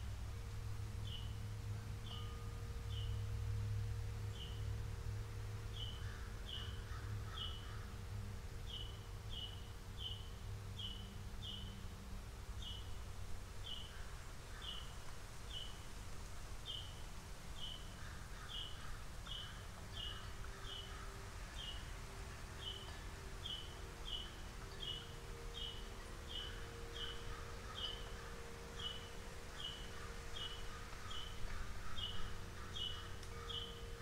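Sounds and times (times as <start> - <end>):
low steady hum: 0.0 - 34.0
bird chirping: 0.9 - 13.0, 13.6 - 16.0, 16.6 - 34.0
birds chattering: 17.6 - 34.0.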